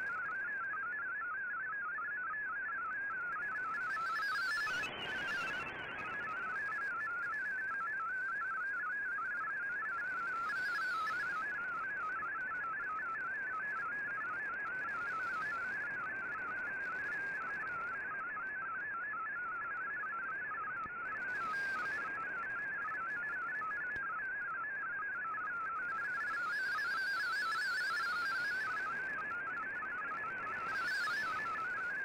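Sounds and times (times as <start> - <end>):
warbling digital data tones: 3.2 - 8.6, 9.4 - 18.0, 25.4 - 32.0.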